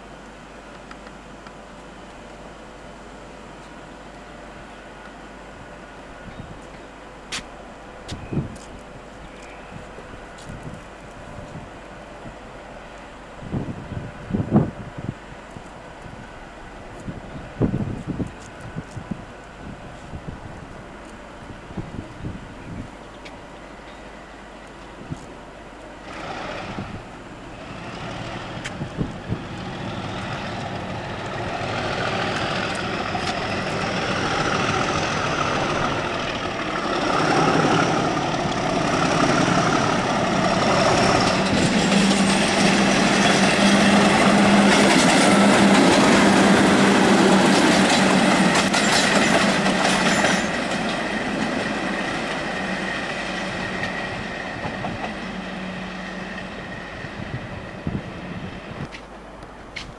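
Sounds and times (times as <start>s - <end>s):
diesel locomotive engine hum: 0.0s - 59.9s
train wheels clattering: 29.4s - 55.4s.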